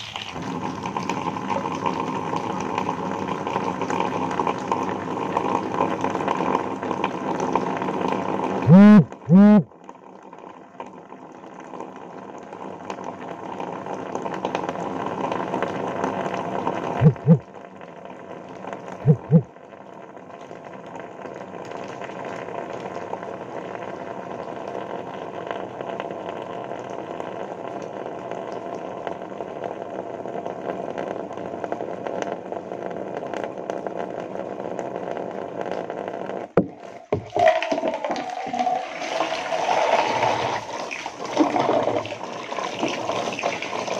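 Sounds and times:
water washing hair: 0.0 - 8.6, 36.6 - 43.9.

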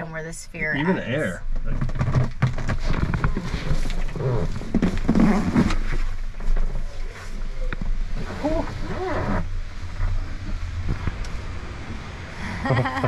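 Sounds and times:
body knocking and scraping on metal: 1.5 - 10.3.

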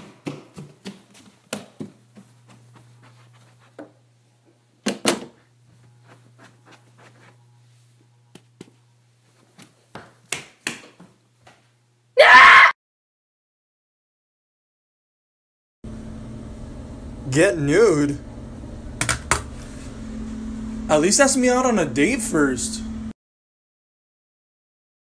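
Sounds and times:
bare footsteps on hardwood floor: 0.0 - 4.0, 8.3 - 11.7
faint low hum: 1.4 - 9.9.

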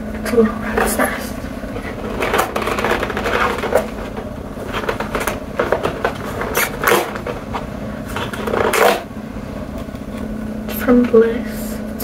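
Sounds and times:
steady low hum: 0.0 - 12.0
cardboard scraping and crackling: 0.8 - 9.1.

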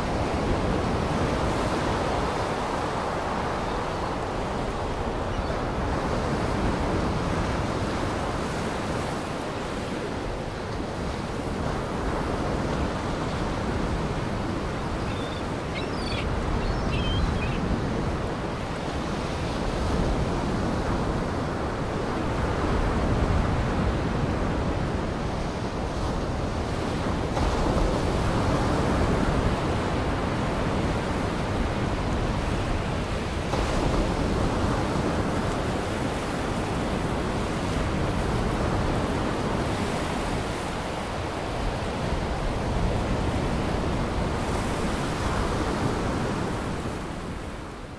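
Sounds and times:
waves breaking on shore: 0.0 - 47.9
faint high chirps: 15.0 - 17.6.

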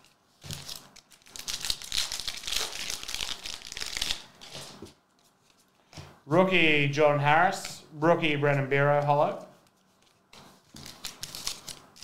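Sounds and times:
foil wrapper tearing and crinkling: 0.0 - 4.3, 10.1 - 12.0.

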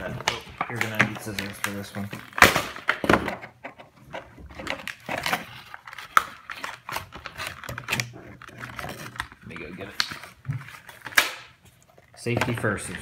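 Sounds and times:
plastic packaging crinkling: 0.0 - 3.0, 4.5 - 13.0.

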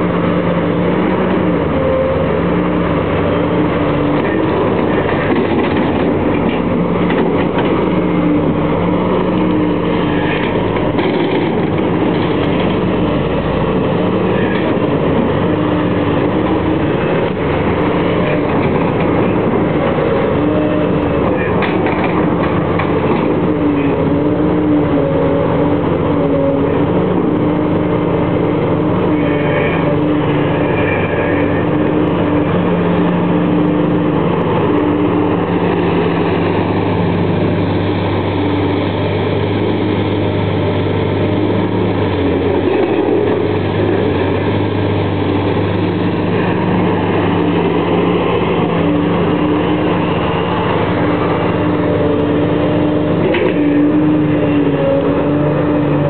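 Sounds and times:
excavator diesel engine running: 0.0 - 56.0.

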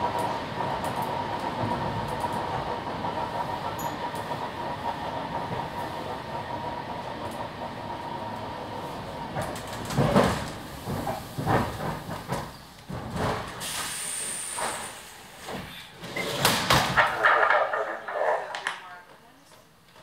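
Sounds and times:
train clatter: 0.0 - 20.0
train knocks and clunks: 0.0 - 20.0
train wheel noise: 0.0 - 20.0
air brake hiss: 13.6 - 16.0.

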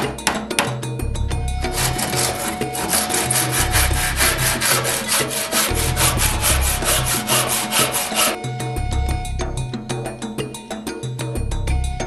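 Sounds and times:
hand saw cutting wood: 1.6 - 8.4.

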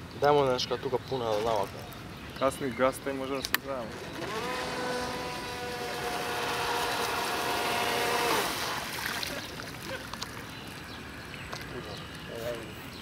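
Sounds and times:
high-revving motor whining: 3.7 - 8.8.

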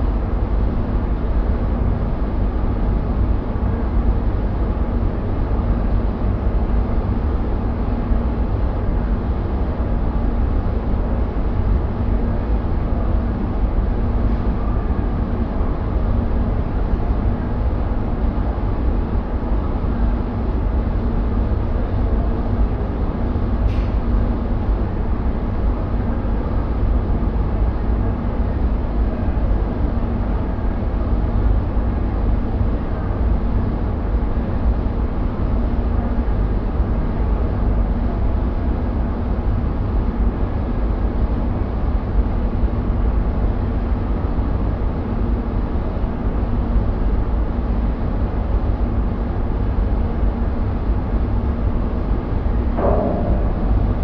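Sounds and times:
extraction fan rumble: 0.0 - 54.0
low hum: 48.6 - 54.0.

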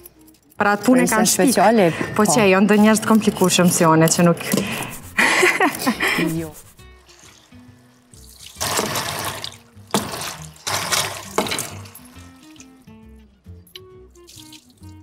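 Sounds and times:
soft background music: 0.0 - 15.0
tap water splashing on potatoes: 7.0 - 12.9, 14.1 - 15.0.

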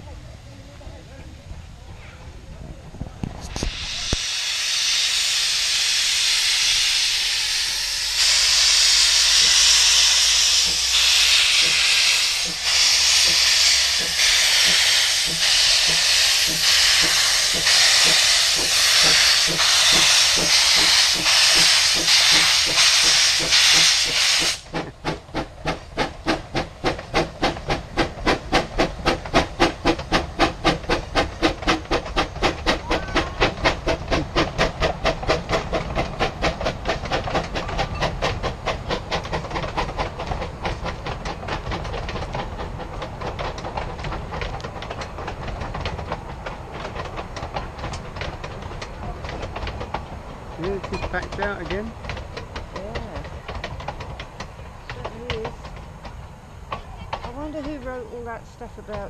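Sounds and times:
steam locomotive exhaust chuffs: 1.5 - 59.0
steam hissing from drain cocks: 3.5 - 40.1.

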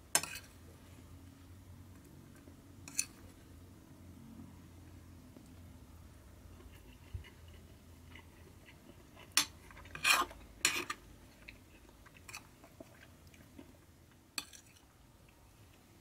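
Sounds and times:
metal spoon scraping ceramic plate: 0.2 - 0.5, 2.9 - 3.2, 9.3 - 11.0.

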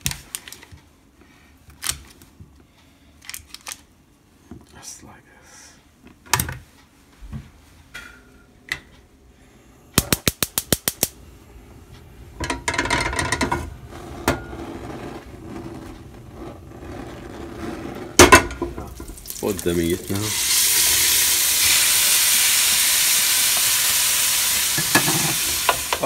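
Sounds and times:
gas igniter clicking: 10.0 - 11.2
gas burner hissing: 18.0 - 26.0.

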